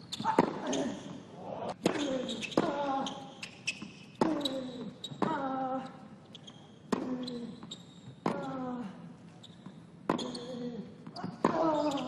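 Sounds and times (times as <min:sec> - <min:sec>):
tennis racket striking ball: 0:00.3 - 0:00.7.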